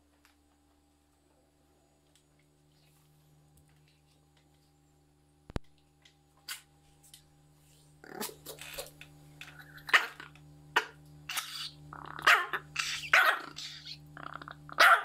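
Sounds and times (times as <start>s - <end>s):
small dog growling: 8.0s - 8.5s, 11.3s - 15.0s.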